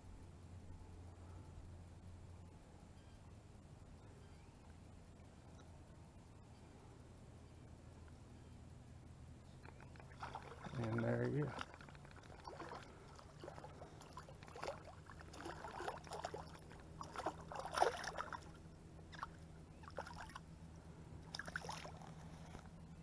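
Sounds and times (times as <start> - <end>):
faint steady hum: 0.0 - 23.0
water sloshing around hand: 9.7 - 20.5, 21.2 - 22.7
fish splashing at surface: 10.0 - 18.5.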